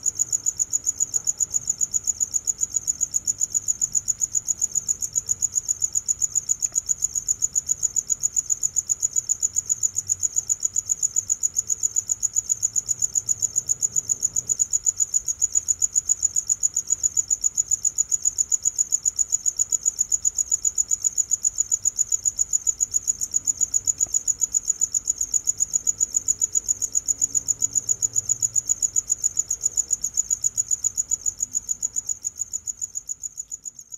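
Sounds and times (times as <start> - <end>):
cricket chirping: 0.0 - 33.9.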